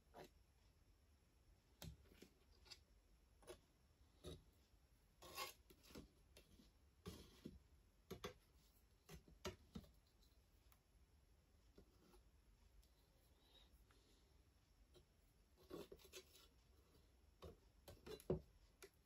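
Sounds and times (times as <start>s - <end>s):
palette knife scraping canvas: 5.2s - 7.6s, 15.0s - 18.4s.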